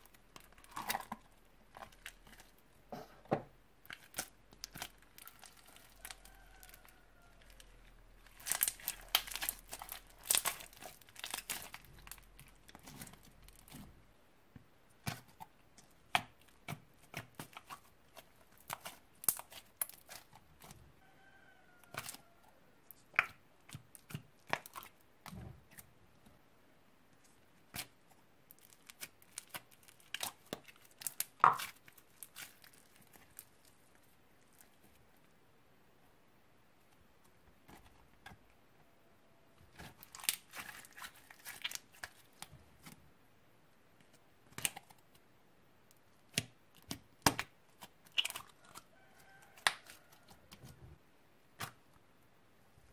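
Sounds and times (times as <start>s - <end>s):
slime sticky pops and crackles: 8.4s - 12.2s, 16.1s - 20.3s, 46.3s - 48.5s, 49.6s - 49.9s.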